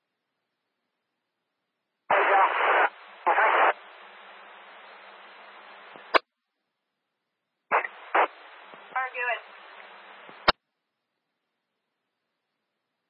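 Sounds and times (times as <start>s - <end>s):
radio channel hiss: 2.1s - 6.2s, 7.7s - 10.6s
radio squelch click: 2.1s - 6.2s, 7.7s - 10.6s
radio static bursts: 2.1s - 6.2s, 7.7s - 10.6s.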